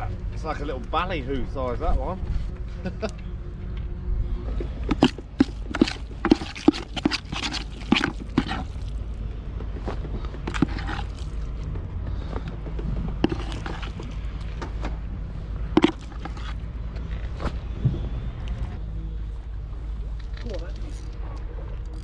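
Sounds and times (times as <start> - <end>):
metal spoon scraping in bucket: 4.8 - 9.0, 10.4 - 11.4, 13.2 - 14.3, 15.8 - 16.6.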